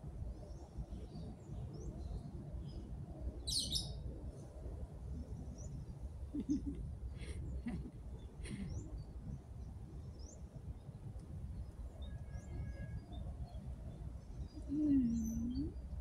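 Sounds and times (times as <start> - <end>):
faint bird chirps: 3.4 - 4.0, 11.6 - 16.0
low steady rumble: 4.2 - 16.0.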